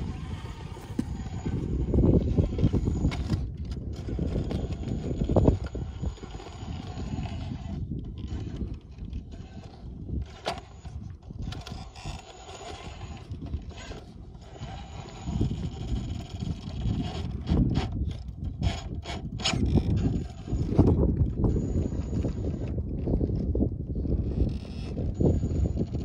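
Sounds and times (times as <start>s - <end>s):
low rumble: 0.0s - 7.8s
clicks and scrapes on rock: 0.0s - 26.0s
electric motor and gears whining: 0.0s - 26.0s.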